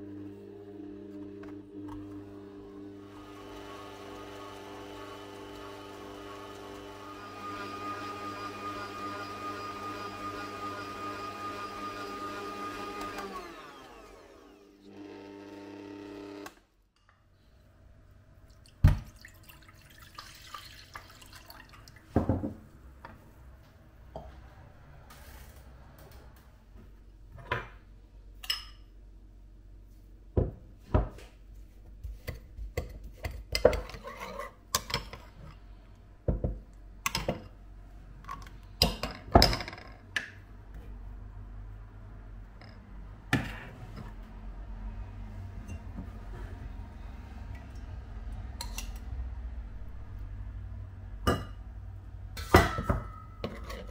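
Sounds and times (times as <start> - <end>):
electric mixer motor winding down: 0.0 - 16.6
kitchen utensils and bowls clattering: 52.4 - 53.9.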